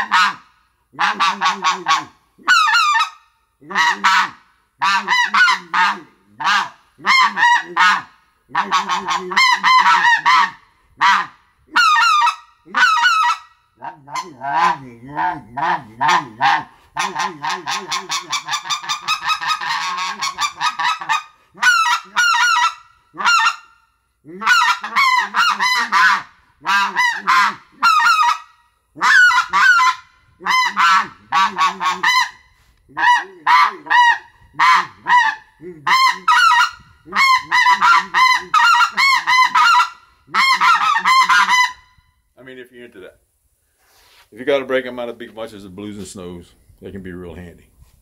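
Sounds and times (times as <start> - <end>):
goose call honking and clucking: 0.0 - 42.0
short breaths: 16.6 - 17.0, 21.3 - 21.6, 43.5 - 44.4.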